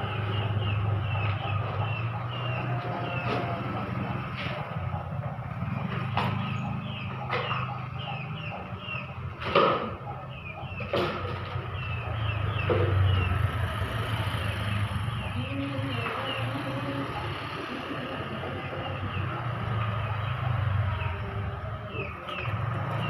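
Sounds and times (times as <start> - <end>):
knocks of boards on wooden frame: 9.4 - 10.0.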